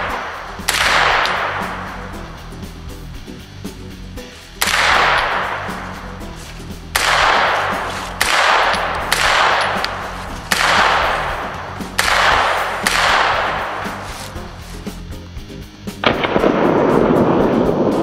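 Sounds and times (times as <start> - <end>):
rifle shots with echo: 0.0 - 1.8, 4.6 - 5.9, 6.9 - 14.0, 16.0 - 17.4.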